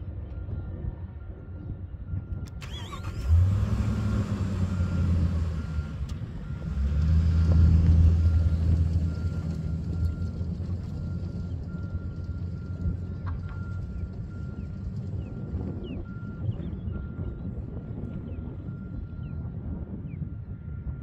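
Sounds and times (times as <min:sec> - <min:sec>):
car engine starting and running: 0:02.5 - 0:17.4
car driving off over dirt: 0:02.6 - 0:17.6.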